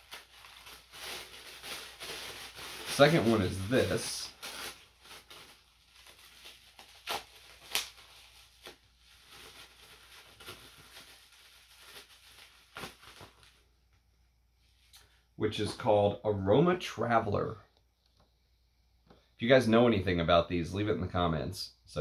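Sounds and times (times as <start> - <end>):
packaging rustling: 0.0 - 13.6.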